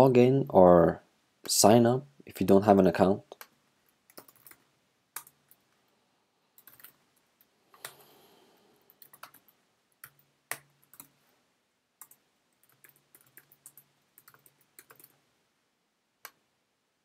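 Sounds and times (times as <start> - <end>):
computer keyboard keystrokes: 4.1 - 4.6, 6.6 - 7.0, 8.9 - 11.1, 12.0 - 15.2.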